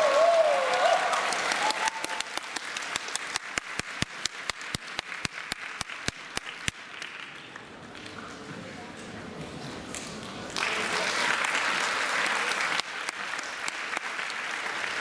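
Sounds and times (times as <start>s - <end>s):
audience applause: 0.0s - 8.5s, 10.3s - 15.0s
rhythmic clapping: 1.2s - 8.2s.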